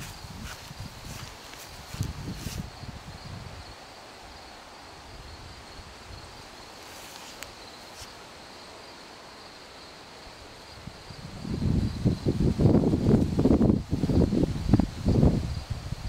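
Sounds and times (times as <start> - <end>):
footsteps through grass: 0.0 - 2.9, 6.7 - 8.3
insects chirring: 0.0 - 16.0.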